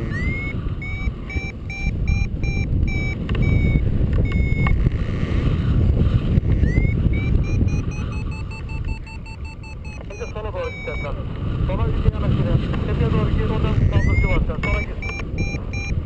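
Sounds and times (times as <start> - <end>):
variometer beeping rapidly: 0.0 - 4.9, 6.4 - 11.3, 13.5 - 16.0
wind rumble on microphone: 0.0 - 16.0.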